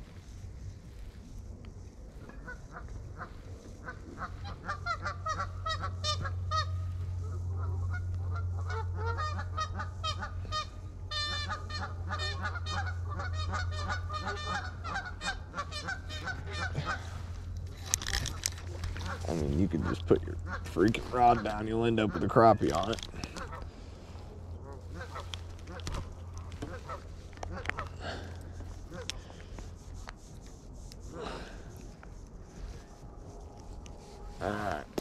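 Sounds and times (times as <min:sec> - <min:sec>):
steady low hum: 0:00.0 - 0:35.0
geese honking: 0:02.2 - 0:29.6.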